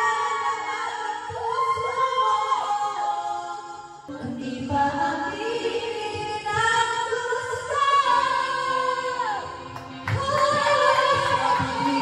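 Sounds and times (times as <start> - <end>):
women singing karaoke: 0.0 - 12.0
backing track music: 8.1 - 12.0.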